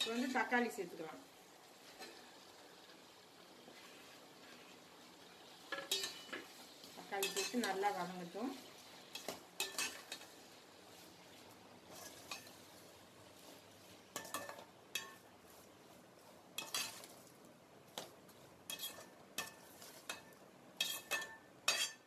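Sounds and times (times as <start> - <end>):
faint frying sizzle: 0.0 - 22.0
metal spatula scraping a pot: 5.7 - 6.5, 7.1 - 8.0, 9.1 - 10.3, 11.9 - 15.7, 16.6 - 17.2, 18.3 - 22.0.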